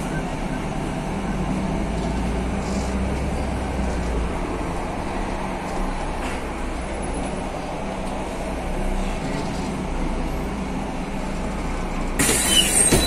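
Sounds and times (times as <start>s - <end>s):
bus engine droning: 0.0s - 13.0s.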